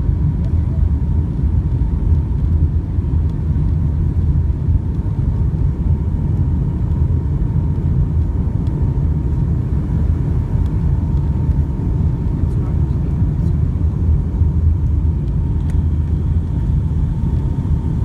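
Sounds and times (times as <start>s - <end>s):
cabin engine rumble: 0.0s - 18.0s.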